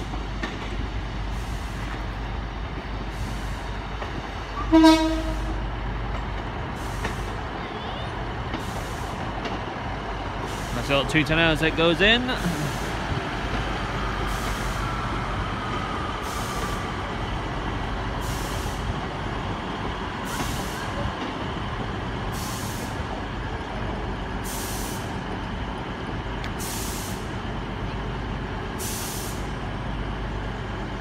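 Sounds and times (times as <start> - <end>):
train engine rumble: 0.0 - 31.0
air hiss: 24.5 - 25.1, 26.6 - 27.3, 28.8 - 29.5.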